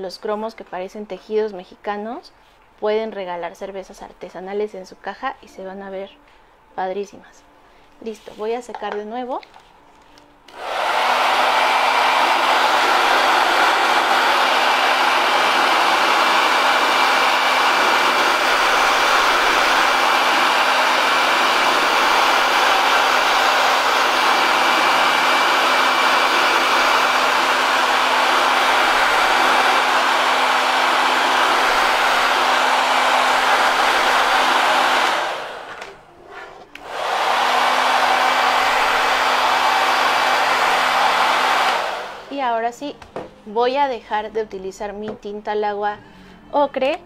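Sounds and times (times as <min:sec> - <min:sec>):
hot-air dryer blowing: 0:10.5 - 0:36.0, 0:36.7 - 0:42.4.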